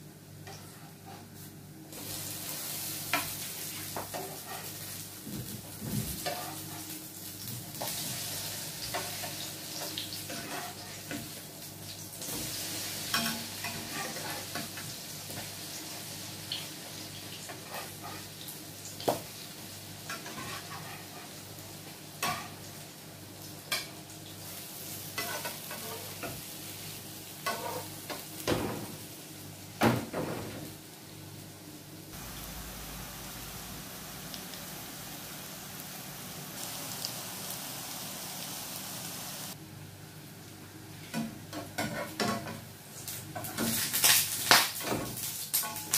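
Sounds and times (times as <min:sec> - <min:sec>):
pancakes sizzling in oil: 0:00.5 - 0:29.5, 0:32.1 - 0:39.6, 0:40.9 - 0:45.9
utensil scraping pan: 0:13.2 - 0:14.6, 0:20.1 - 0:21.3.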